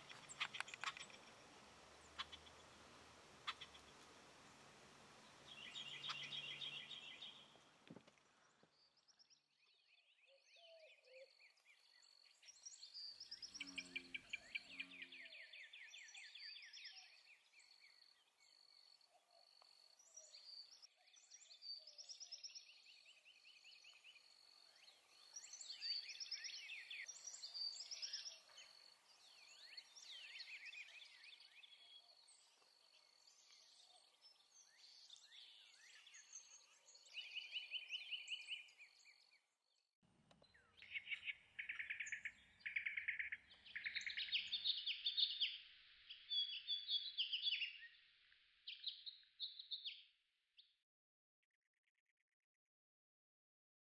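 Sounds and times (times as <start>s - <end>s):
songbirds singing and calling: 0.0s - 50.8s.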